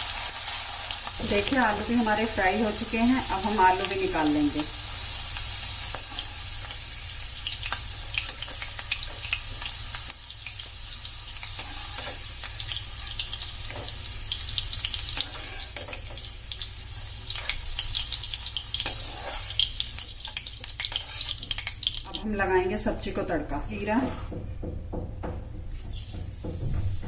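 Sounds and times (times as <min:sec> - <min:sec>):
oil sizzling: 0:00.0 - 0:22.5
slotted spoon scraping pan: 0:11.6 - 0:12.3, 0:15.1 - 0:16.0, 0:18.8 - 0:19.6.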